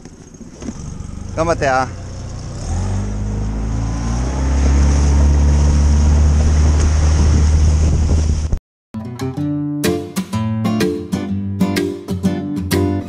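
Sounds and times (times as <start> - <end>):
outboard motor running: 0.4 - 8.6
wind and water rushing: 2.6 - 8.6
acoustic guitar music: 9.0 - 13.0.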